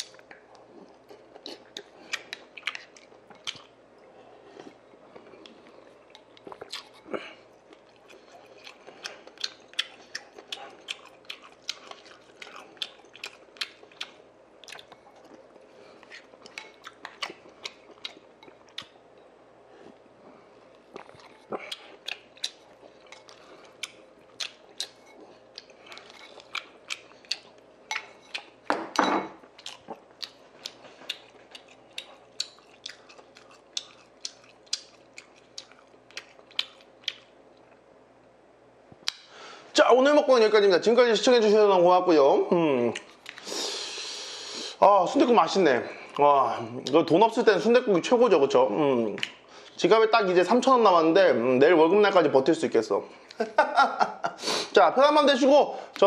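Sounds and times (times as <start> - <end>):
man chewing with mouth clicks: 0.0 - 28.7, 29.4 - 37.9, 39.0 - 39.3, 42.8 - 44.8, 49.1 - 49.8.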